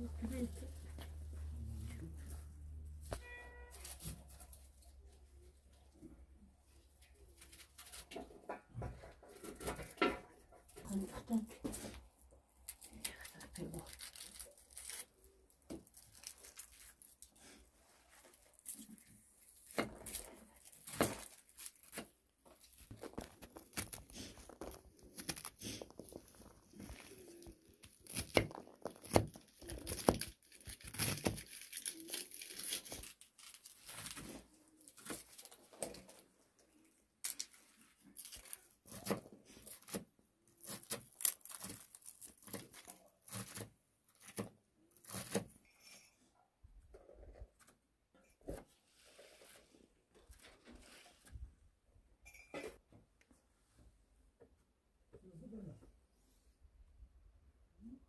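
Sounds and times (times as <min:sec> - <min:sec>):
rustling and crinkling: 0:00.0 - 0:51.7
tearing: 0:12.6 - 0:17.6, 0:18.2 - 0:36.2, 0:37.2 - 0:45.6.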